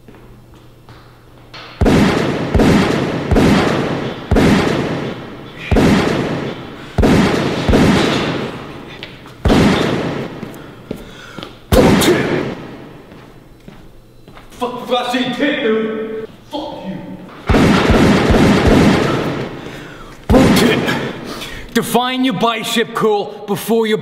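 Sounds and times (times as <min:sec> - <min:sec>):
loud ringing bangs: 0:01.7 - 0:13.1, 0:17.4 - 0:21.6.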